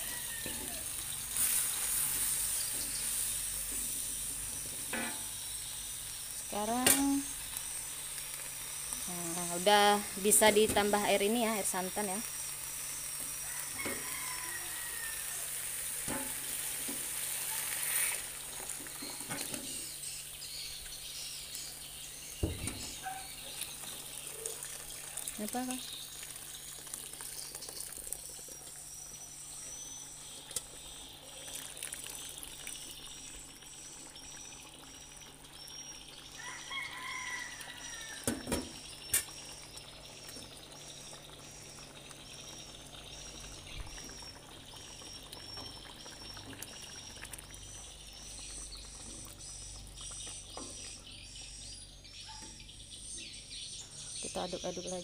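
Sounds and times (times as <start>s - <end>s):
liquid pouring into a wok: 0.0s - 9.1s, 12.2s - 50.9s
liquid heating in a pan: 0.0s - 52.2s.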